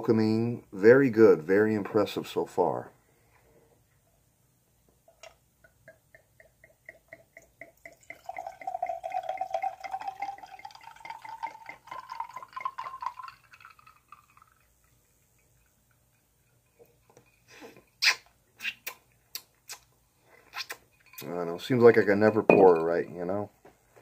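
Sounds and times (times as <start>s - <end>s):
wine pouring into glass: 5.8s - 17.5s.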